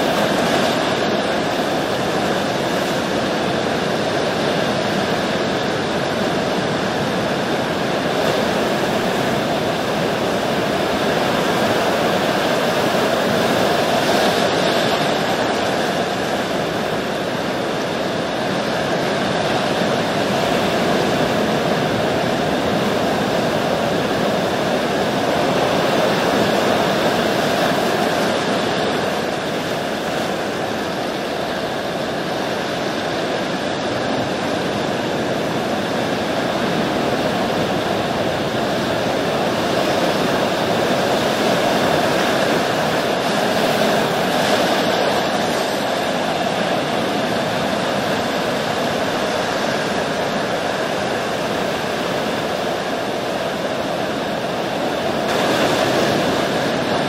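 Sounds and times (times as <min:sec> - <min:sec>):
ocean waves washing: 0:00.0 - 0:57.0.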